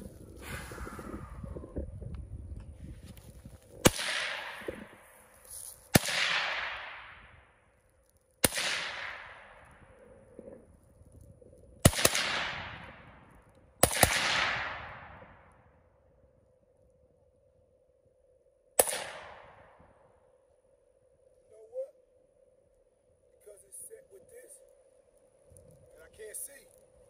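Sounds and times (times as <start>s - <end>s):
rifle shots with echo: 3.8s - 5.0s, 5.9s - 7.4s, 8.4s - 10.0s, 11.8s - 15.6s, 18.8s - 19.8s.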